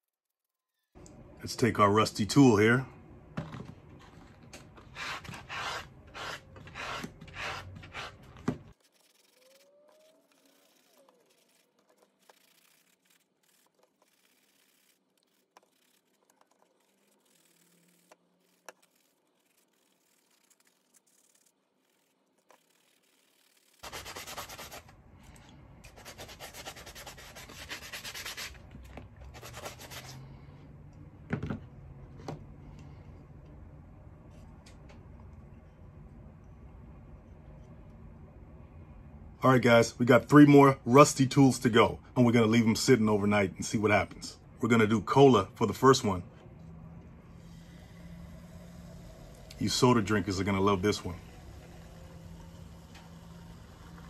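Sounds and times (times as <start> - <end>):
sanding sponge scrubbing metal: 8.8 - 24.9, 25.9 - 28.6.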